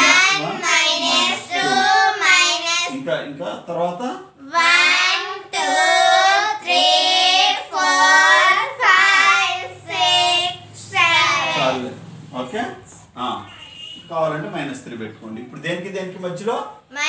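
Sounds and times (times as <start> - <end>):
children chanting in unison: 0.0 - 3.0, 4.4 - 12.0.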